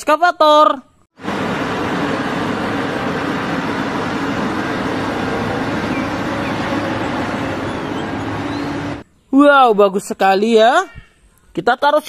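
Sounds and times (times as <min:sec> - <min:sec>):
even rushing noise: 0:01.2 - 0:09.0
excavator diesel engine humming: 0:01.2 - 0:09.0.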